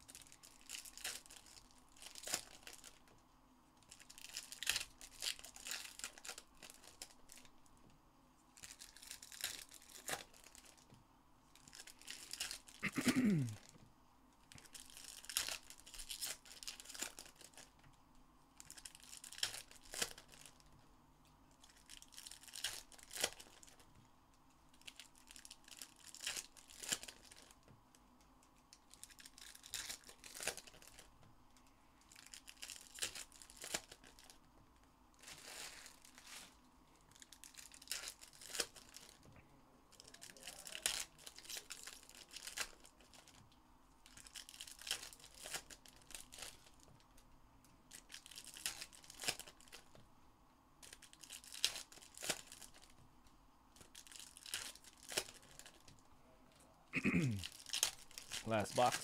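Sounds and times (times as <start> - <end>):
foil wrappers tearing and crinkling: 0.0 - 3.1, 3.9 - 7.5, 8.6 - 10.8, 11.6 - 13.5, 14.5 - 17.8, 18.6 - 20.7, 21.6 - 23.8, 24.8 - 27.6, 28.8 - 31.1, 32.1 - 34.4, 35.2 - 39.2, 39.9 - 43.4, 44.0 - 47.0, 47.9 - 50.0, 50.8 - 52.9, 53.8 - 55.9, 57.4 - 59.0.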